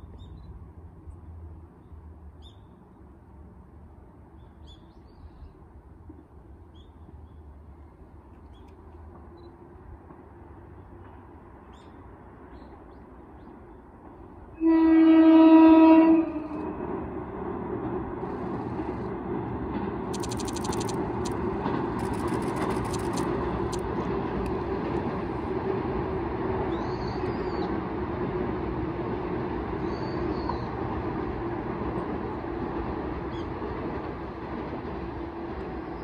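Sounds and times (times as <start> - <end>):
train rumbling over steel bridge: 0.0 - 36.0
train horn blast: 14.6 - 16.8.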